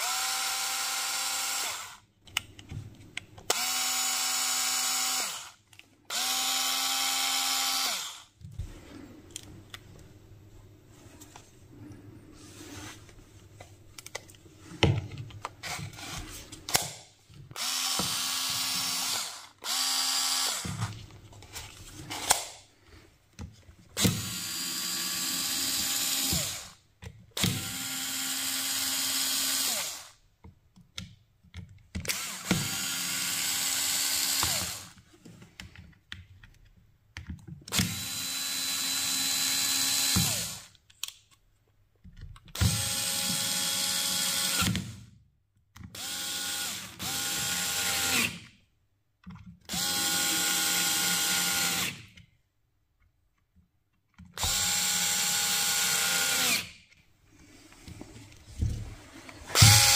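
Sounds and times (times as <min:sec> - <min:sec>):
cordless screwdriver whine: 0:32.1 - 0:34.9, 0:37.7 - 0:40.7, 0:54.4 - 0:56.7, 0:59.5 - 0:59.9.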